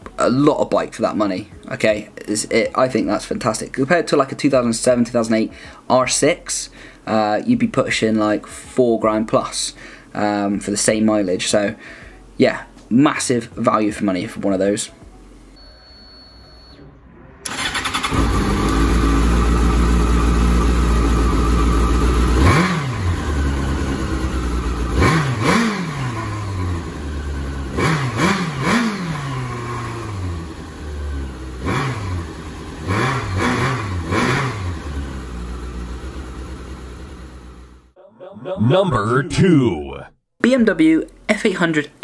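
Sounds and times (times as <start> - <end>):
motorcycle engine idling and revving: 17.5 - 37.9.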